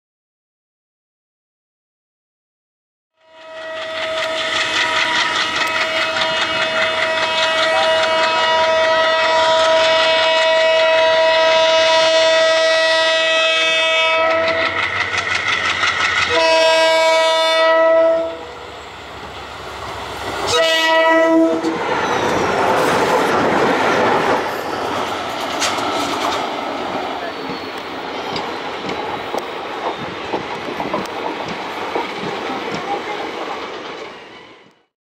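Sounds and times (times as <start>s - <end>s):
locomotive horn blasts: 3.2s - 14.8s, 16.3s - 18.5s, 20.5s - 21.8s
train coaches rumbling past: 3.2s - 34.9s.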